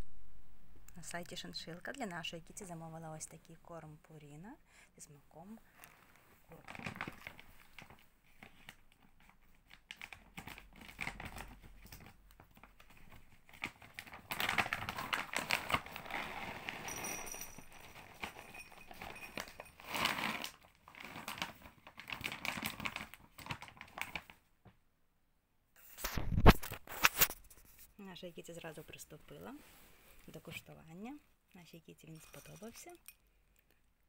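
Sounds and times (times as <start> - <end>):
plastic bag crinkling: 5.7 - 24.4
kibble pouring into a bowl: 14.4 - 23.1.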